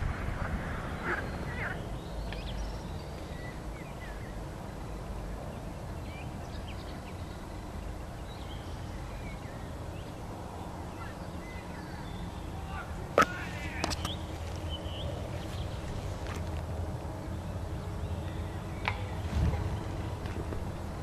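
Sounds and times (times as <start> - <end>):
low rumble: 14.9 - 21.0.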